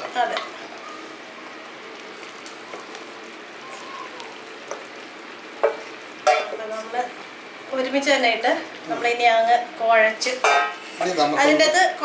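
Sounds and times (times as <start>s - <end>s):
pan simmering with soft sizzle: 0.0s - 12.0s
faint clicks of food added: 1.9s - 3.1s.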